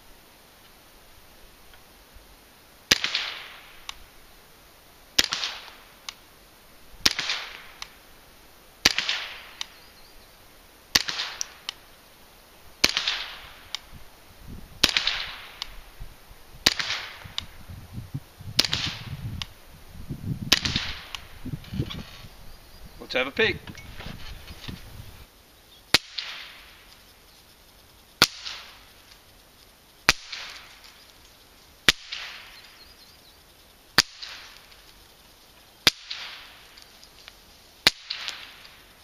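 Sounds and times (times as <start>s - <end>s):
suppressed rifle shots: 2.9s - 4.0s, 5.2s - 5.8s, 7.0s - 8.0s, 8.8s - 9.8s, 10.9s - 11.8s, 12.8s - 13.9s, 14.8s - 15.8s, 16.6s - 17.5s, 18.6s - 19.2s, 20.5s - 21.3s, 25.9s - 26.7s, 28.2s - 28.8s, 30.1s - 30.8s, 31.8s - 32.6s, 35.8s - 36.6s, 37.8s - 38.7s.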